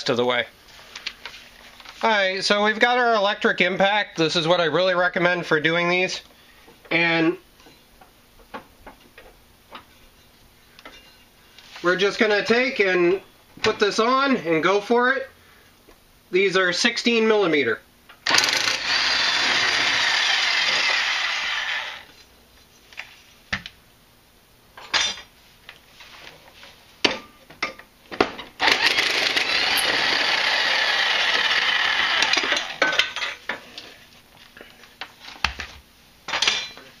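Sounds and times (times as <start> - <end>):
impact wrench hammering: 18.3 - 22.0.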